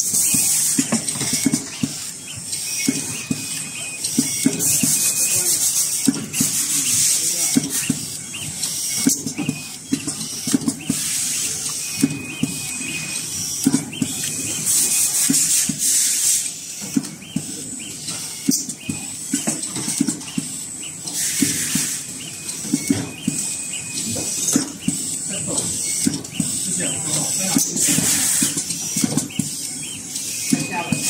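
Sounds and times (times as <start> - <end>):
machine clicks and knocks: 0.0 - 16.0, 16.7 - 31.0
air hiss bursts: 4.5 - 9.3, 10.4 - 11.7, 14.2 - 16.8, 20.4 - 22.7, 23.3 - 29.1.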